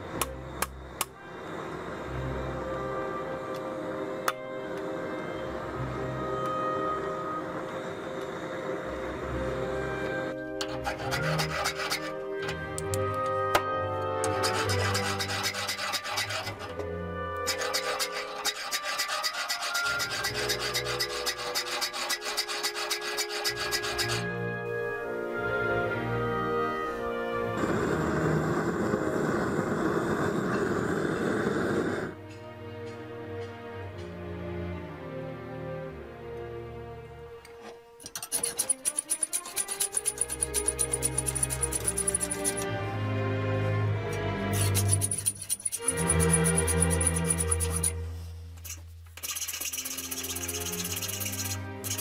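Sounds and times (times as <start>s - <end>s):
file rasping on steel: 10.6s - 12.3s, 14.2s - 16.8s, 17.4s - 24.3s, 38.0s - 42.7s, 44.5s - 48.0s, 48.6s - 52.0s
fast high ticking: 38.4s - 42.6s, 44.6s - 48.0s.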